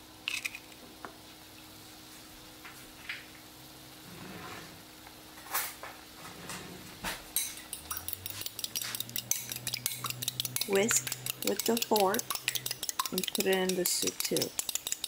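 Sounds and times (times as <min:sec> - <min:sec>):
fork clinking on glass: 0:07.4 - 0:15.0
fork knocking glass bowl: 0:07.4 - 0:15.0.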